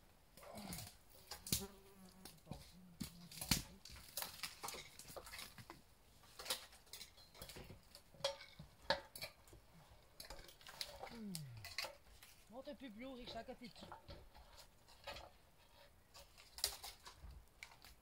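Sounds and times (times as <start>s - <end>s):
knocks and metallic clinks: 6.4s - 12.4s.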